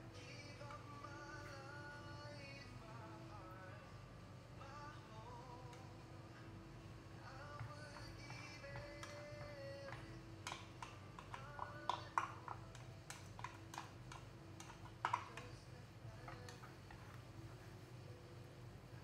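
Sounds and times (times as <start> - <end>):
utensil clinking against bowl and pan: 7.6 - 17.2.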